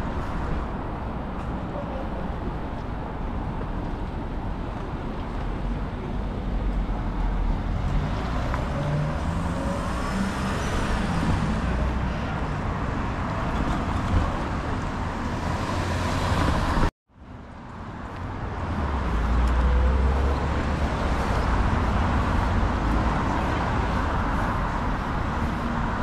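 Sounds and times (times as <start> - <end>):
traffic driving past: 3.5 - 16.9, 17.5 - 26.0.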